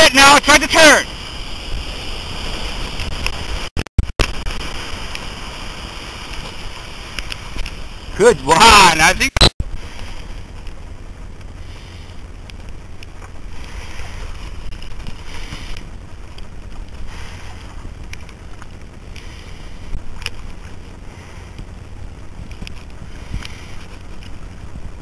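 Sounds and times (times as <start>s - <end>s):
wind buffeting microphone: 9.6s - 25.0s.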